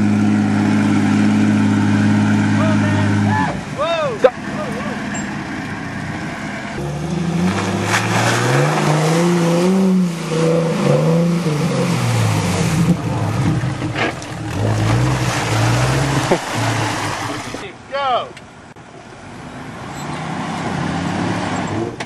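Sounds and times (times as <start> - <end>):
car engine revving: 0.0 - 17.6
water and mud splashing: 6.8 - 17.6.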